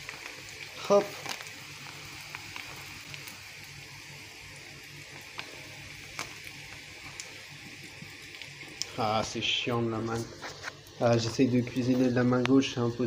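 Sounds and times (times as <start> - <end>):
potatoes sizzling in a pan: 0.0 - 13.0.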